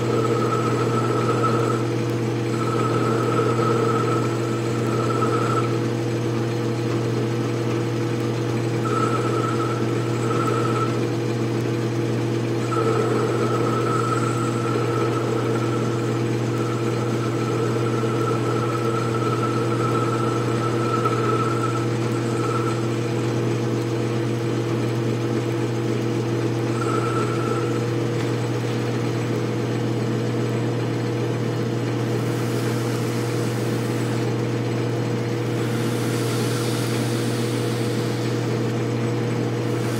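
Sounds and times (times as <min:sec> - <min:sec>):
metal lathe running: 0:00.0 - 0:39.9
higher whine: 0:08.8 - 0:11.0, 0:12.6 - 0:23.0, 0:26.7 - 0:28.0.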